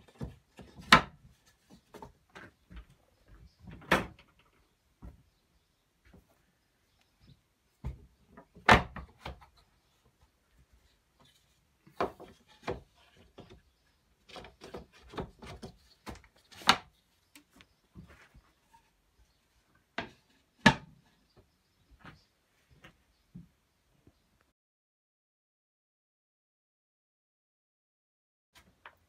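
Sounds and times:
wooden knocks and clacks: 11.9s - 13.6s, 14.2s - 18.3s, 20.0s - 21.0s.

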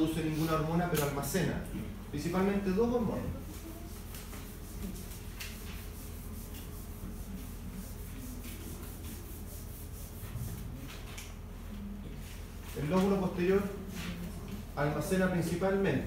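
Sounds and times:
eraser scrubbing whiteboard: 3.0s - 11.3s.

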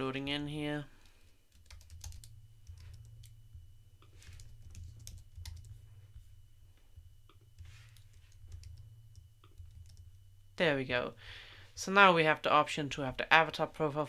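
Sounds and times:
steady low hum: 0.0s - 14.0s
keyboard typing: 1.5s - 5.8s, 7.3s - 10.2s.

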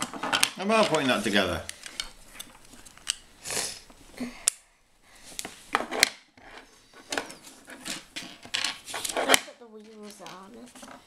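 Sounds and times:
pieces rubbing on table: 5.5s - 11.0s
plastic pieces clicking together: 5.8s - 11.0s.

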